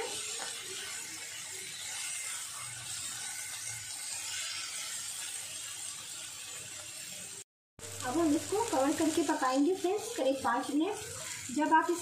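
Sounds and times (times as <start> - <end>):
spatula scraping a pan: 0.0 - 7.4, 10.0 - 12.0
chicken sizzling in a pan: 0.0 - 12.0.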